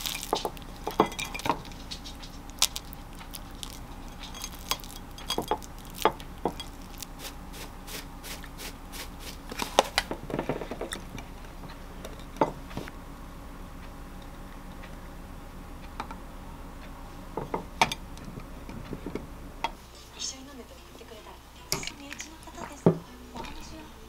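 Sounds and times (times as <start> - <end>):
glass of ice clinking: 0.0 - 1.7, 3.6 - 7.0
shaker jar ticking: 0.0 - 7.4.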